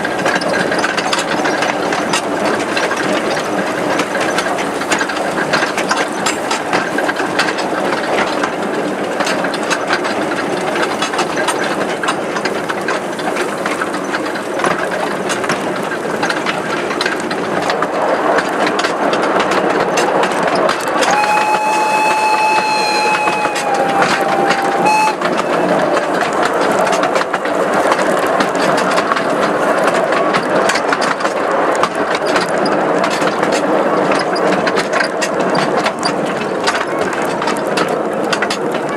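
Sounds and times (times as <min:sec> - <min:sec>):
train wheels clattering on track: 0:00.0 - 0:38.9
steam whistle: 0:21.0 - 0:27.3.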